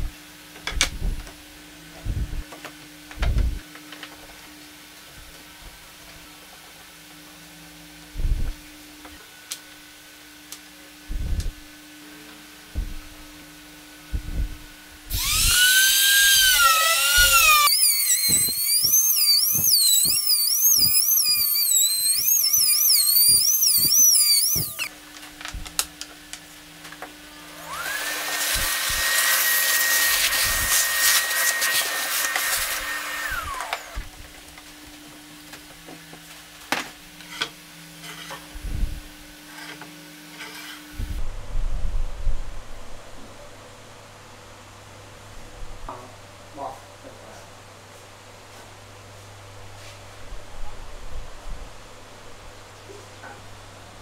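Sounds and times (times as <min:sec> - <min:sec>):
trim router whining: 0:15.1 - 0:24.9, 0:27.4 - 0:34.1.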